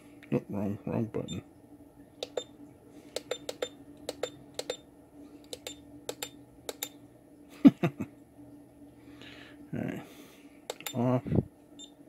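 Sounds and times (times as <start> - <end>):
push buttons clicking: 2.2 - 2.5, 3.2 - 4.8, 5.5 - 7.0, 10.7 - 11.0.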